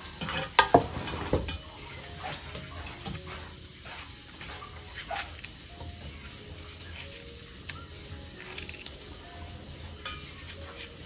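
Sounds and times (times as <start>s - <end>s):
knife cutting gourds: 2.3s - 9.1s, 10.2s - 11.0s.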